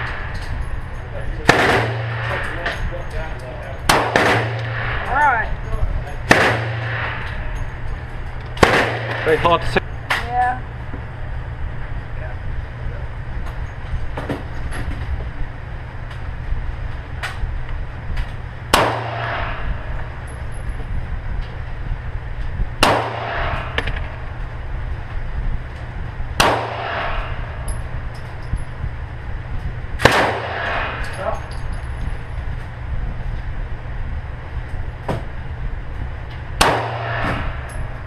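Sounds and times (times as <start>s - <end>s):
steady low hum: 0.0s - 38.0s
pistol shots echoing: 1.4s - 2.5s, 3.9s - 4.9s, 6.3s - 7.2s, 8.6s - 9.4s, 30.0s - 31.1s, 36.6s - 37.4s.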